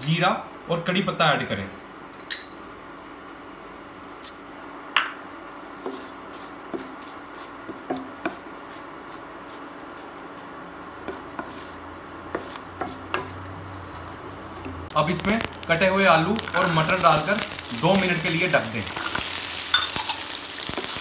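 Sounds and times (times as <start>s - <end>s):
seeds sizzling in hot oil: 2.6s - 21.0s
wooden spoon stirring: 5.8s - 21.0s
oil popping and spluttering: 14.9s - 21.0s.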